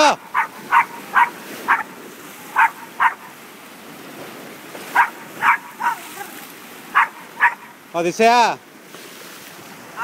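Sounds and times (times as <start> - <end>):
sea surf breaking on rocks: 0.0 - 10.0
small dog barking: 0.3 - 1.9, 2.5 - 3.3, 4.9 - 7.7.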